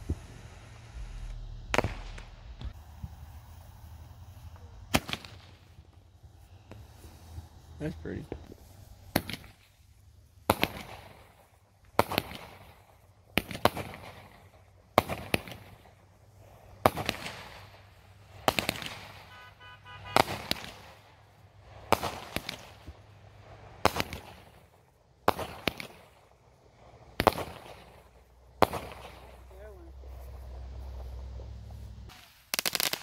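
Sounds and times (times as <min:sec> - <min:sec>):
firework bangs with crackle: 0:00.0 - 0:03.4, 0:04.9 - 0:05.9, 0:09.1 - 0:09.8, 0:10.4 - 0:26.3, 0:27.0 - 0:30.3, 0:32.1 - 0:33.0.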